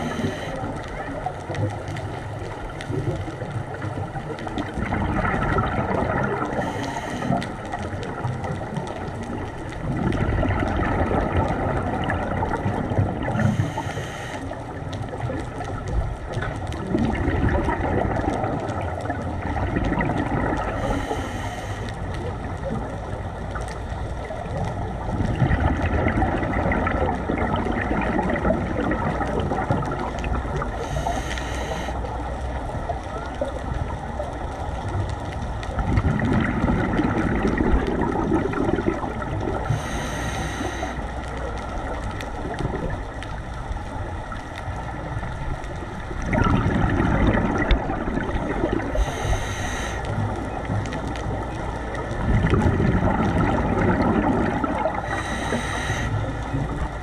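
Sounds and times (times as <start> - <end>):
regulator inhalation hiss: 0.0 - 0.6, 6.6 - 7.4, 13.4 - 14.4, 20.8 - 22.0, 30.8 - 32.0, 39.7 - 41.0, 48.9 - 50.2, 55.1 - 56.4
bubbling underwater exhalations: 2.5 - 13.8, 14.7 - 21.3, 24.8 - 32.1, 35.8 - 43.1, 45.8 - 57.0.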